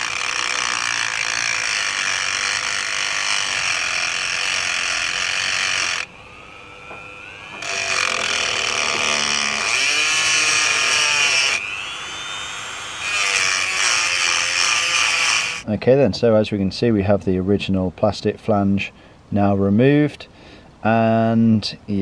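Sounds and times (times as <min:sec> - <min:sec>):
cut-off disc grinding metal: 0:00.0 - 0:15.6
motor whine spinning up: 0:05.2 - 0:14.4.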